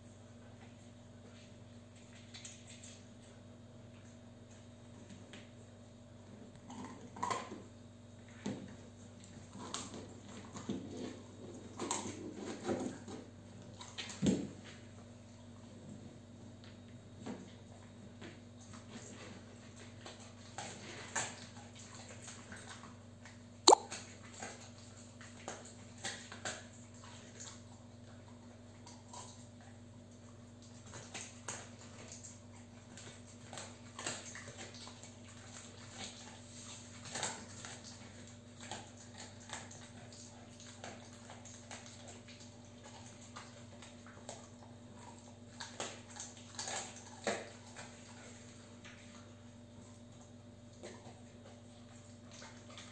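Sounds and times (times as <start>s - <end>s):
dog crunching chew treat: 6.6s - 7.7s, 18.6s - 52.9s.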